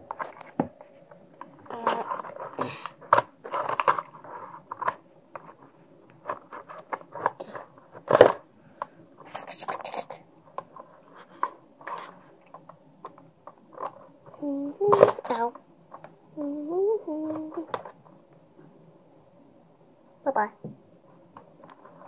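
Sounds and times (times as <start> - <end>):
box rustling and clicking: 0.0 - 8.5.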